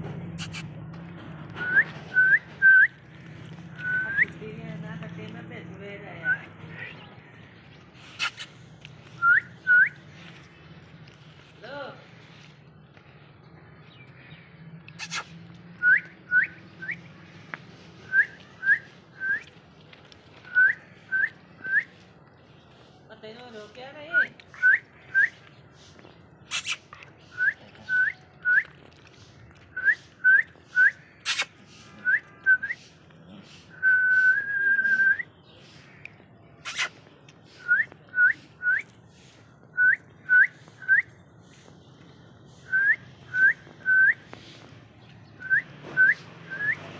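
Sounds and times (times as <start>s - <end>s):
person whistling rising notes: 1.6s - 2.9s.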